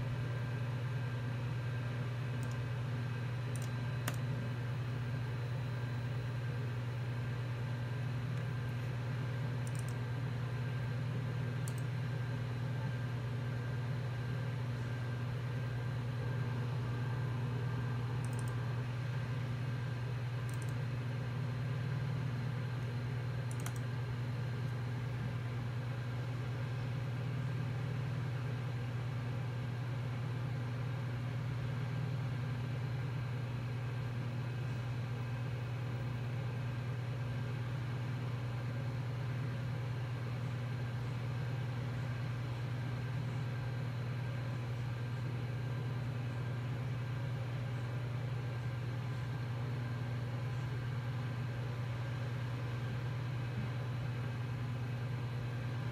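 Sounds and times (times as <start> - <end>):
computer fan hum: 0.0 - 55.9.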